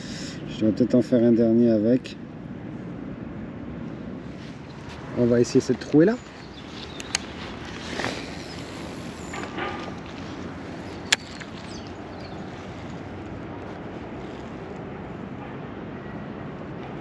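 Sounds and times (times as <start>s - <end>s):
outdoor background noise: 0.0s - 17.0s
short rustle: 4.2s - 14.8s
sharp click: 7.0s - 7.3s.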